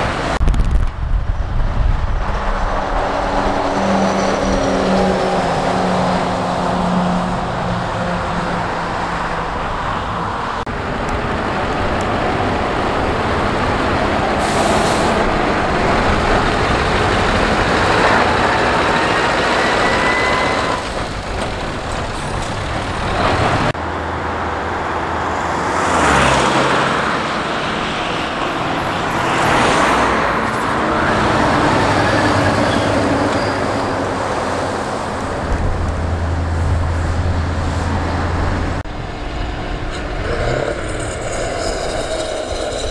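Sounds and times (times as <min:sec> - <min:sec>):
tyre and road noise: 0:00.0 - 0:42.9
trucks driving past: 0:01.2 - 0:42.9.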